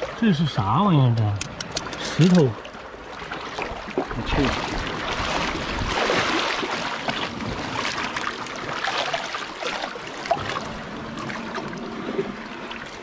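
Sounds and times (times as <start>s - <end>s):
seawater lapping among rocks: 0.0s - 13.0s
sharp click: 1.1s - 2.4s.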